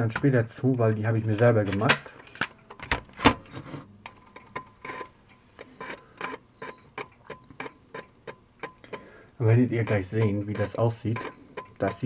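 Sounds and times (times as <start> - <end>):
floppy disk drive clicking: 4.1 - 12.0.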